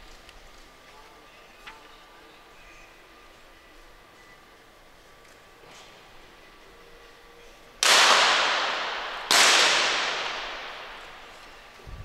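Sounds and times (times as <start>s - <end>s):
pistol shots cracking: 7.8s - 11.6s.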